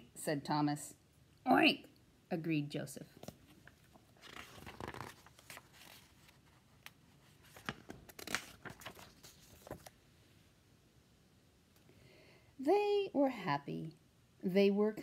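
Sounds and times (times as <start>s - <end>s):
book pages rustling and flicking: 3.1s - 10.0s.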